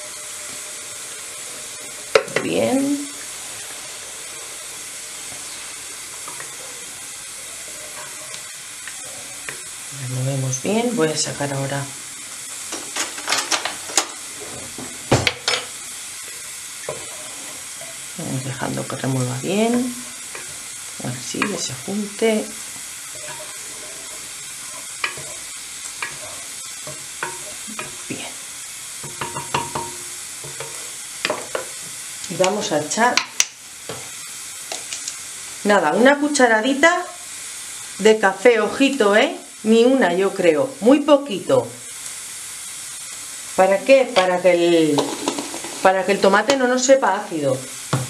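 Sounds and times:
pressure cooker hissing steam: 0:00.0 - 0:48.0
wooden spoon scraping: 0:05.3 - 0:09.8, 0:16.3 - 0:28.3, 0:29.0 - 0:31.9, 0:44.2 - 0:46.6
wooden spoon knocking clay pot: 0:29.0 - 0:30.6.

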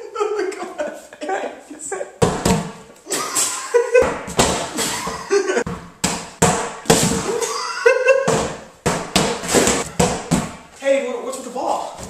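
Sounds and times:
dull thuds: 0:04.0 - 0:07.4, 0:08.2 - 0:10.7.

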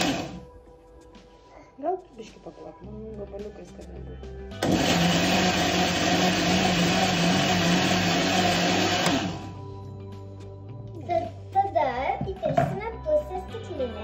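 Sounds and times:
electric blender running: 0:00.0 - 0:00.4, 0:04.6 - 0:09.6.

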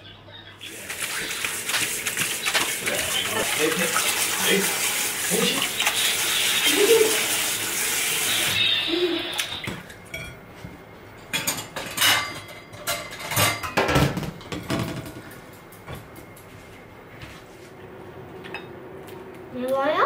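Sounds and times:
tap water running into metal pot: 0:00.6 - 0:09.8
water splashing: 0:00.6 - 0:09.8.

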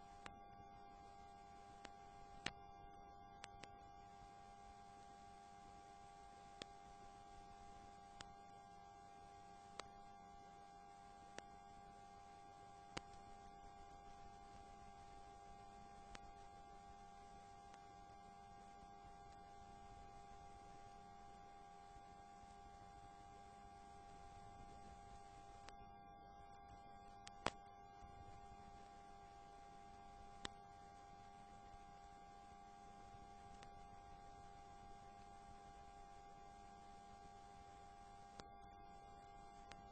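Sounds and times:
faint clicks: 0:00.0 - 0:08.6, 0:09.2 - 0:25.9, 0:26.5 - 0:32.3, 0:32.9 - 0:39.9
faint electrical hum: 0:00.0 - 0:39.9.

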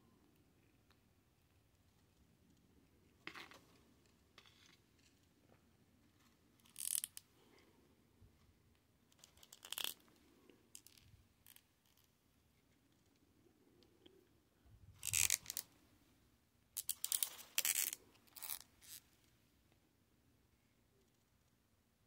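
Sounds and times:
plastic toy rustling and scraping: 0:03.2 - 0:05.3, 0:06.0 - 0:07.2, 0:15.0 - 0:15.7, 0:16.8 - 0:19.1.

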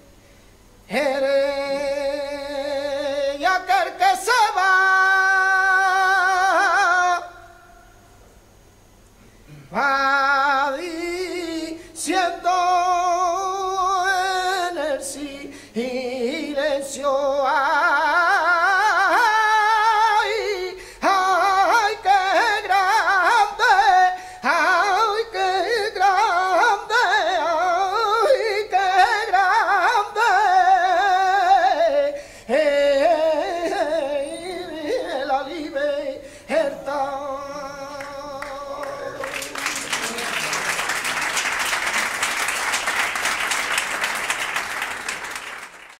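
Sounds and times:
man singing ornamented vocal line: 0:00.9 - 0:07.7, 0:09.7 - 0:40.2
audience applause: 0:38.4 - 0:46.0.

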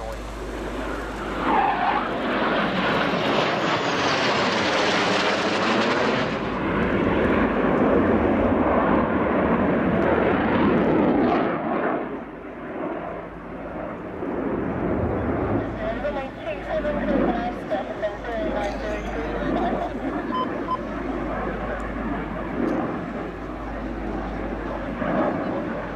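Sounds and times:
jet fighters roaring overhead: 0:00.0 - 0:25.9.

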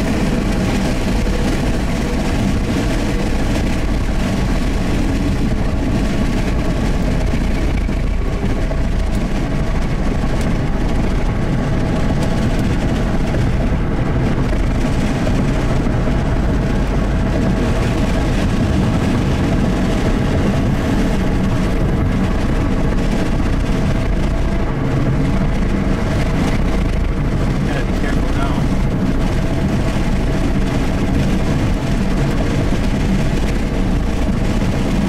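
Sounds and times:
car road noise from cabin: 0:00.0 - 0:35.0.

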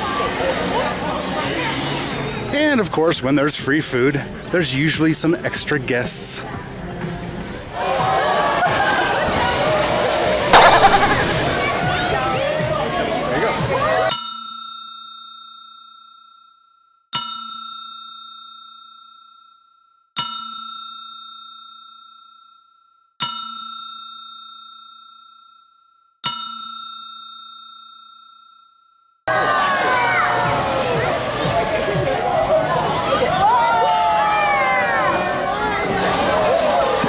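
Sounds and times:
bell-like chime: 0:14.1 - 0:29.1.

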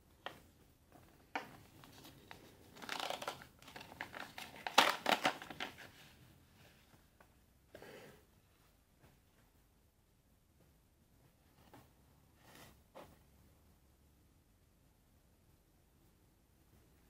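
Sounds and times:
paper envelope tearing and rustling: 0:01.9 - 0:05.9.

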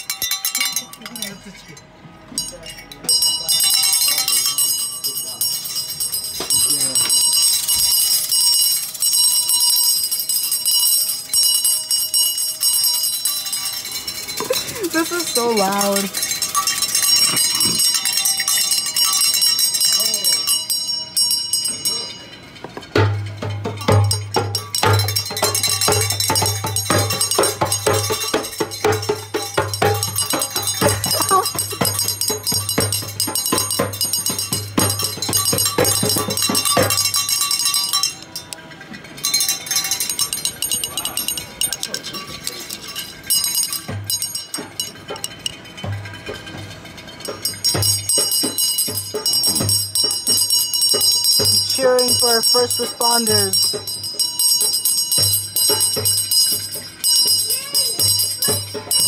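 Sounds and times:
bell-like clanks: 0:00.0 - 0:59.0
handbell ringing: 0:00.0 - 0:59.0
people banging and clanging: 0:00.0 - 0:59.0.

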